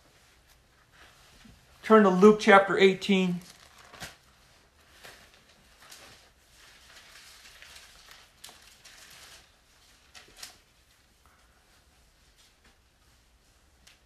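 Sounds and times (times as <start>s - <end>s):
paper crinkling: 3.3s - 11.2s
thin pages turning: 3.4s - 10.9s.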